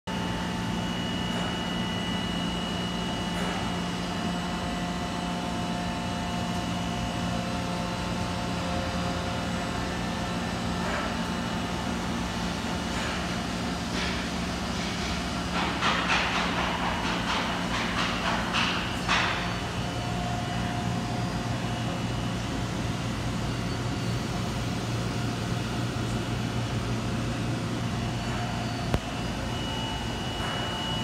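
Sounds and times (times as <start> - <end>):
milling machine hum: 0.1 - 31.0
high whines of axis drives: 17.6 - 31.0.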